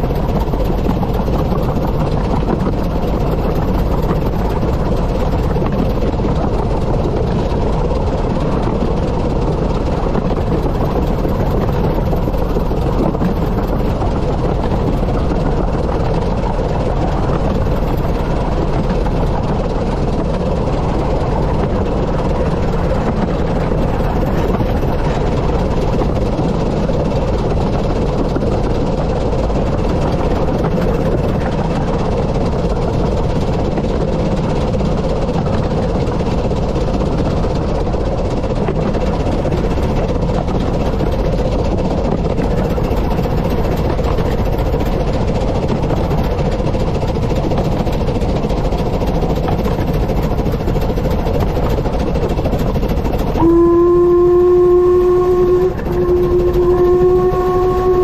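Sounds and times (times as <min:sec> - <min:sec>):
steam train rumbling: 0:00.0 - 0:58.0
steam whistle: 0:53.3 - 0:58.0.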